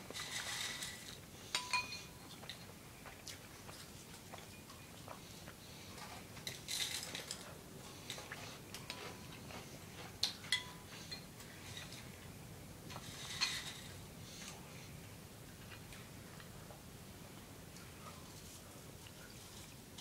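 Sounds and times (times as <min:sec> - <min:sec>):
cereal rattling in a bowl: 0:00.2 - 0:01.2.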